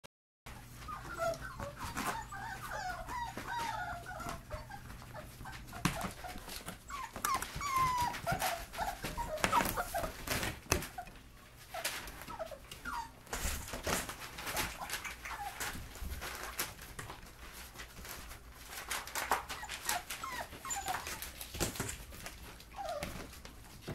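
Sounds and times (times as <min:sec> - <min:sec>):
puppies whining: 0:00.5 - 0:23.9
knocks and rustles from handling: 0:11.7 - 0:23.9.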